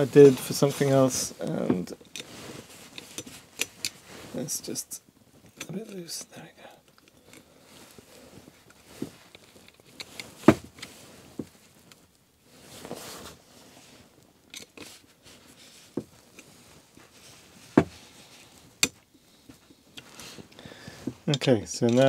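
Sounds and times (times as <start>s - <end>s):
metal parts clicking and knocking: 21.3s - 22.0s.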